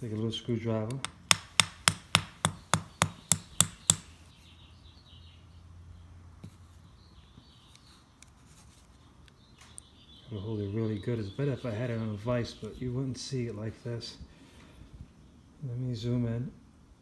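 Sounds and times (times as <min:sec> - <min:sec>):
metal punch tapping: 0:00.9 - 0:04.1.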